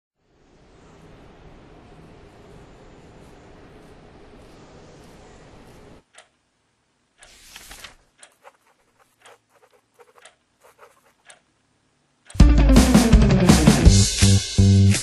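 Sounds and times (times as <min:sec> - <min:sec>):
background hiss: 0:00.2 - 0:15.0
faint clicks and ticks: 0:03.8 - 0:12.4.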